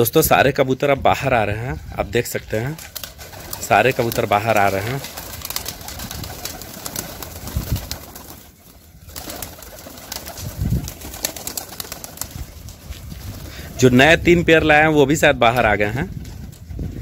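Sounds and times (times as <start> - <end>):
wing flaps: 2.8 - 13.9.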